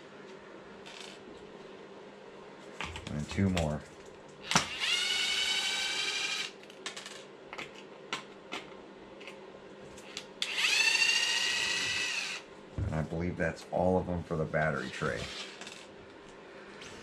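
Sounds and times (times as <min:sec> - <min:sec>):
electric screwdriver whine: 0:04.5 - 0:06.6, 0:10.4 - 0:12.4.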